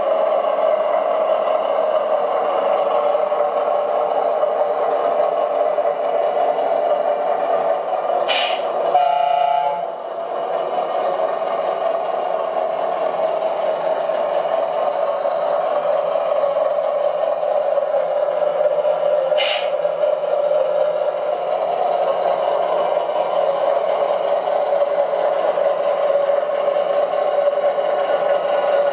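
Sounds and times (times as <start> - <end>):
model truck running: 0.0 - 28.9
brief hisses: 8.3 - 8.7, 19.4 - 19.8
short horn blast: 8.4 - 9.9.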